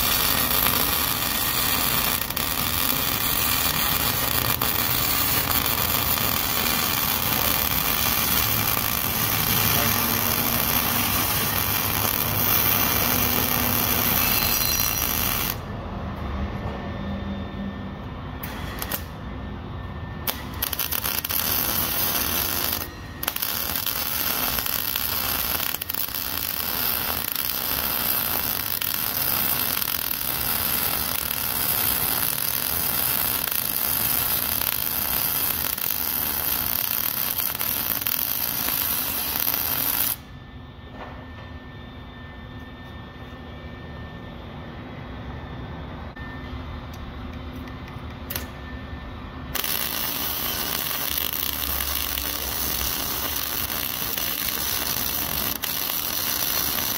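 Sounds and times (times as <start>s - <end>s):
arc welding crackling hiss: 0.0s - 15.6s, 20.3s - 40.2s, 49.6s - 56.9s.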